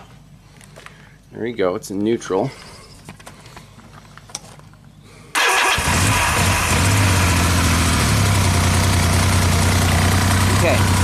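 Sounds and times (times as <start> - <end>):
motorcycle engine starting and idling: 5.4 - 11.0.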